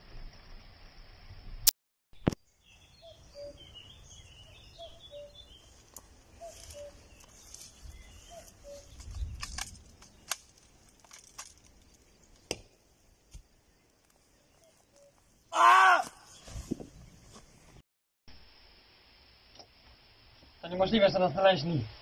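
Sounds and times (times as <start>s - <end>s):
high bird chirping: 2.2s - 10.3s
birds calling: 2.2s - 10.8s
sharp clicks: 9.0s - 12.6s.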